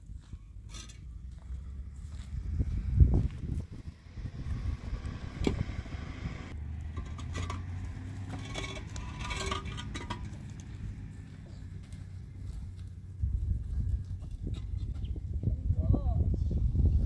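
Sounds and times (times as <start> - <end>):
low rumble: 1.0 - 17.0.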